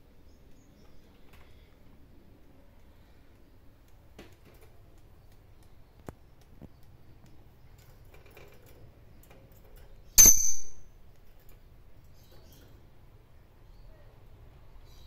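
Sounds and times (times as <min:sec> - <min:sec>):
faint clicks: 0:02.8 - 0:09.9
metallic clink of wire cage: 0:08.3 - 0:11.6.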